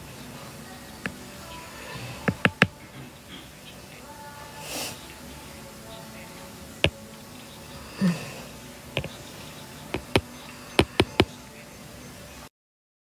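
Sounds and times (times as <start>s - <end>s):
low steady hiss: 0.0s - 12.5s
sharp clicks and knocks on phone: 2.3s - 2.8s, 10.0s - 11.3s.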